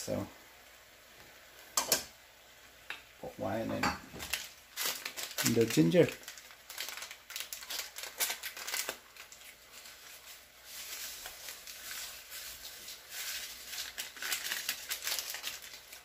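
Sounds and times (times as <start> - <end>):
frying pan simmering hiss: 0.0 - 16.0
plastic pouch crinkling: 4.2 - 16.0.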